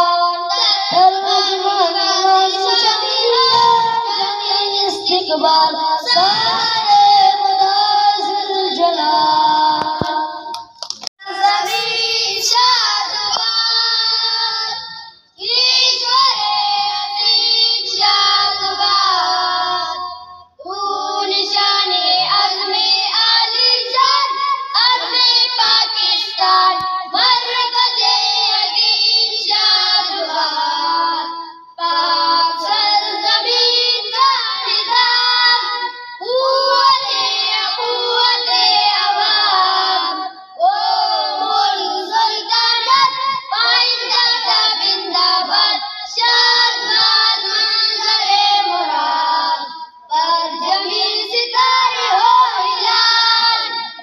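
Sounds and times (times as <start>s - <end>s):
boys singing together: 0.0s - 54.0s.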